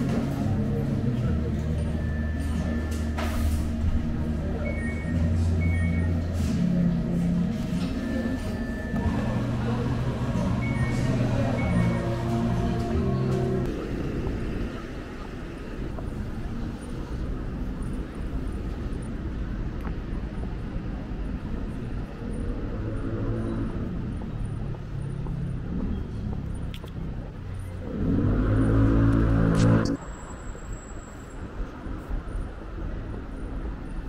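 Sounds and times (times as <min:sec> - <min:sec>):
low rumble of road traffic: 0:00.0 - 0:34.0.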